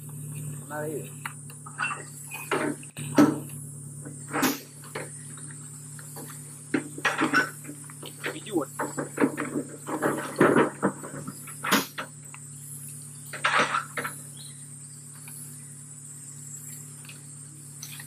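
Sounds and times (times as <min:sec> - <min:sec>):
high buzz of insects: 0:00.0 - 0:18.0
rustles and knocks: 0:01.2 - 0:12.2.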